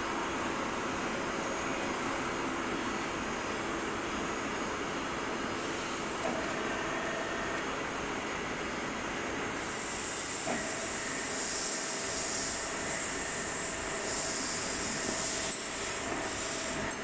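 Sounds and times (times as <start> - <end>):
high hiss of oil flow: 9.6 - 16.8.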